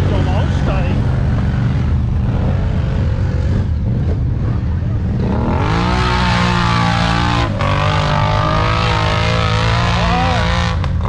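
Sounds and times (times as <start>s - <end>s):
vehicle engine revving: 0.0s - 11.0s.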